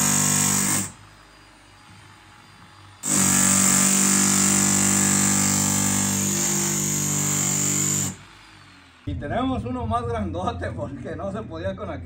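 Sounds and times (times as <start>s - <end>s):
rotary hammer drilling metal: 0.0s - 9.0s.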